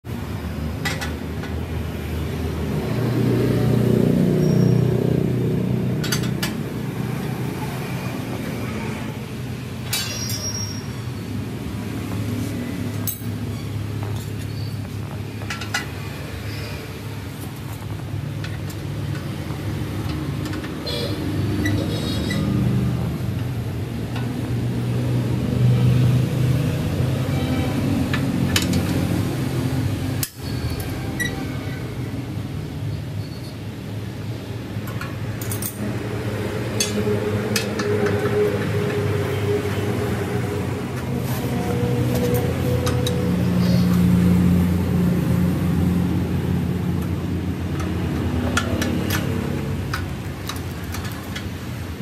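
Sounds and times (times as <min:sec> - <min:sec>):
spanner clinking on bolts: 0:06.0 - 0:06.6, 0:09.8 - 0:10.9, 0:12.9 - 0:16.6, 0:34.8 - 0:36.0, 0:47.0 - 0:51.8.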